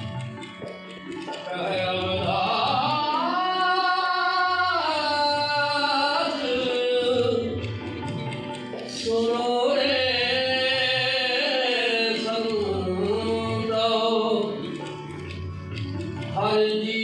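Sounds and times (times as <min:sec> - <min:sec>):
harmonium: 0:00.0 - 0:17.0
man singing a hymn: 0:01.8 - 0:07.5, 0:09.0 - 0:14.6, 0:16.4 - 0:17.0.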